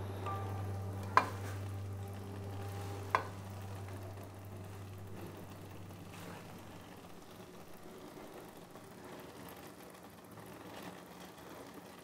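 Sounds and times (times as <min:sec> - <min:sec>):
low hum: 0:00.0 - 0:09.1.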